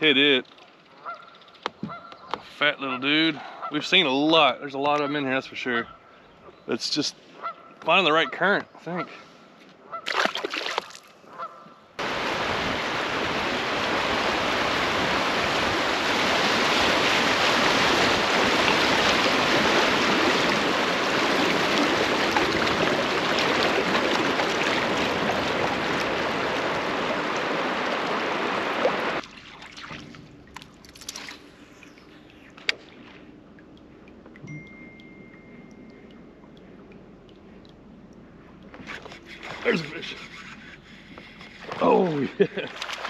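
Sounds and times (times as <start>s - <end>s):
rushing river water splashing: 10.0s - 11.1s, 12.0s - 31.5s.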